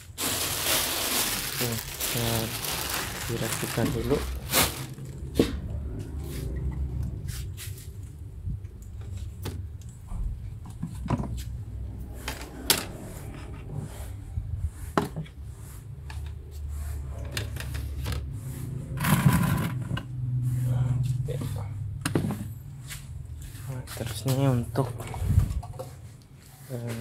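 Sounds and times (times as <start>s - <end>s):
plastic crates clattering: 0.0s - 5.3s
noisy scrape: 11.4s - 21.7s.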